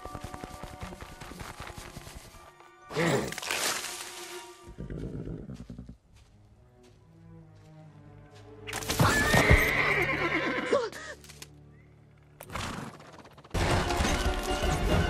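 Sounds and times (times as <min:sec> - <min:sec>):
film music: 0:00.0 - 0:15.0
horse whinnying: 0:08.9 - 0:10.8.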